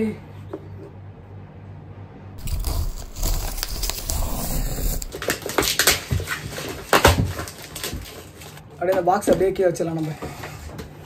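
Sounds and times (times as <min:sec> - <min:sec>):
cardboard box being torn open: 0:02.4 - 0:06.0
wrapping crinkling and crackling: 0:02.4 - 0:08.6.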